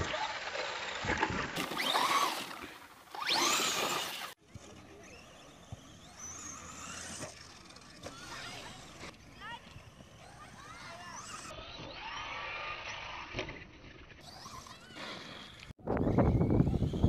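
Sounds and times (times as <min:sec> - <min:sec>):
electric motor whining: 0:01.6 - 0:04.4.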